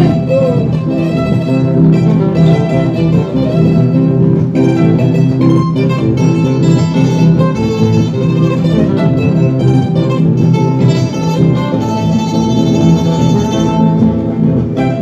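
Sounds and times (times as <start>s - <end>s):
string band playing: 0.0s - 15.0s.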